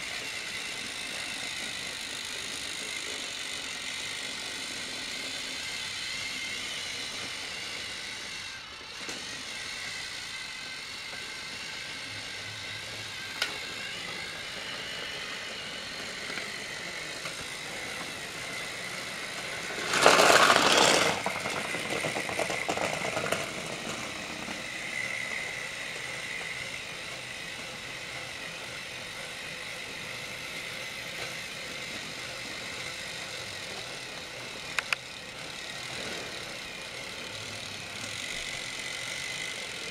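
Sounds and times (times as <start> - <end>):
plastic wheels on plastic track: 0.0 - 39.9
toy train motors whirring: 0.0 - 39.9
plastic parts clattering: 19.8 - 23.6.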